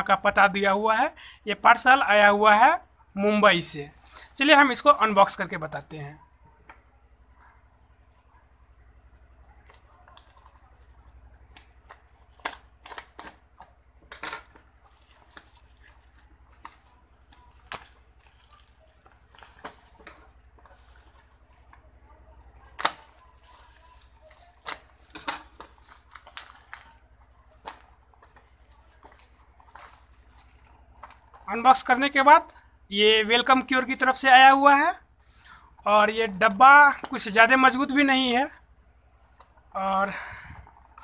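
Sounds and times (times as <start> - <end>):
plastic wrap crinkling and snapping: 7.8 - 31.9.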